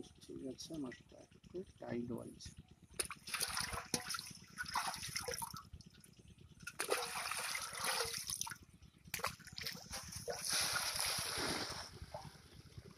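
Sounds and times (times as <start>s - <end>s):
fish splashing into a pond: 3.0s - 5.6s, 6.7s - 12.4s
water sloshing in a metal pot: 3.0s - 5.6s, 6.7s - 8.5s.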